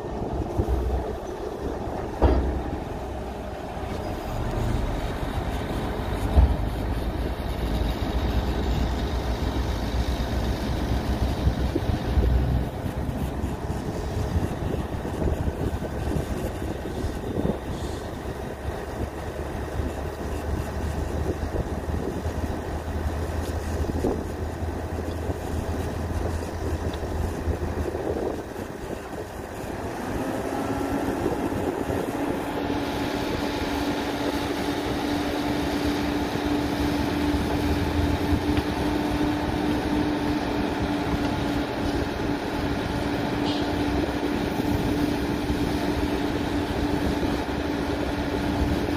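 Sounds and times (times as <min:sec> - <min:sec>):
diesel engine running: 0:00.0 - 0:48.9
hydraulic ram hum: 0:00.0 - 0:48.9.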